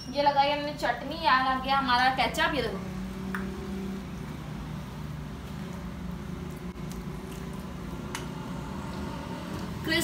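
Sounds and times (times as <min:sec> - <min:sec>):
low machine hum: 0:00.8 - 0:10.0.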